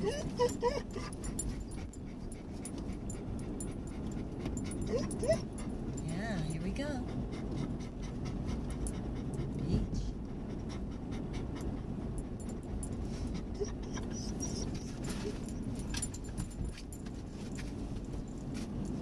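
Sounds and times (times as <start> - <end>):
dog panting: 0.0 - 15.7
car rumble: 0.0 - 19.0
light clicks and rustles: 14.6 - 19.0.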